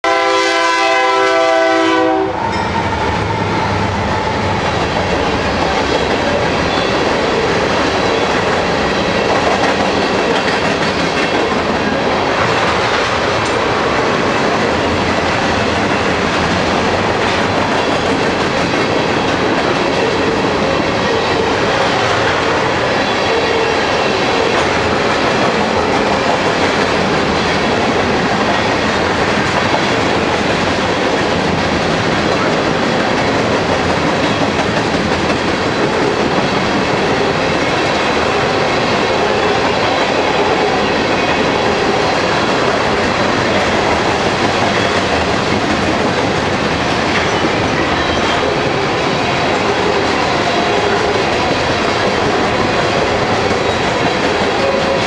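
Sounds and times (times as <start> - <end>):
locomotive horn chord: 0.0 - 2.4
train rumbling and wheels clattering: 0.0 - 55.0.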